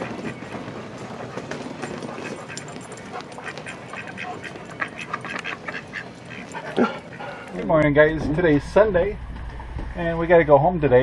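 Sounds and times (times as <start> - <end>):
ducks quacking: 0.0 - 8.6.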